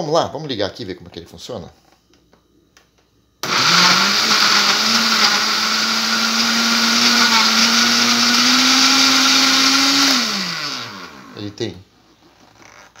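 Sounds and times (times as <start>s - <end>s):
blender motor running: 3.4s - 11.6s.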